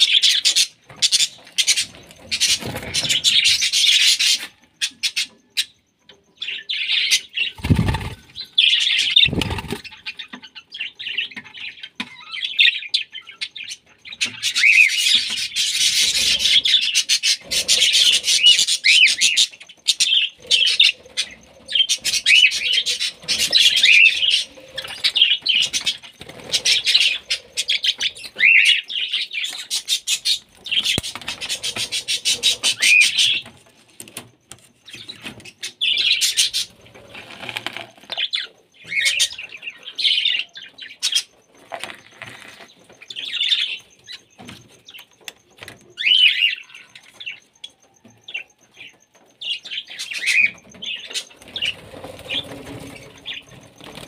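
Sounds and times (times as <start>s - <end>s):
budgerigars chirping: 0.0s - 33.6s, 38.1s - 47.4s.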